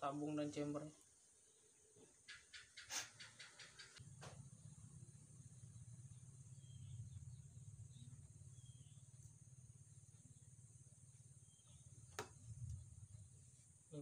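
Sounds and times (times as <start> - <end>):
faint high chirps: 1.4 - 14.0
low hum: 4.0 - 13.9.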